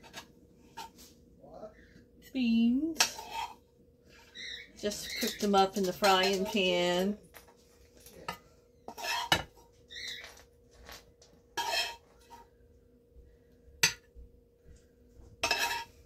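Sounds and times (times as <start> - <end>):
faint steady hum: 0.0 - 16.0
metal utensil scraping frying pan: 3.0 - 3.6, 4.2 - 7.1, 8.9 - 10.2, 11.5 - 12.4, 15.4 - 16.0.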